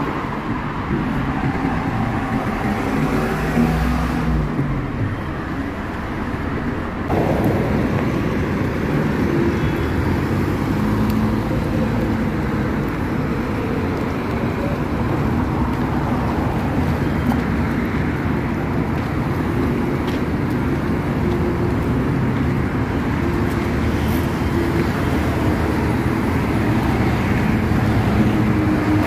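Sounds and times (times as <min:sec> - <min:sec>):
street traffic rumble: 0:00.0 - 0:29.0.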